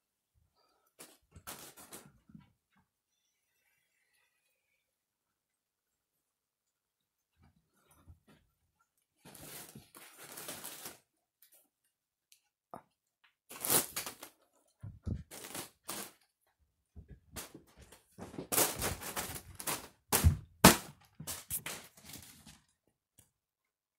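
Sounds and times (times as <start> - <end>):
fan blades hitting foil balloons: 17.4 - 22.1.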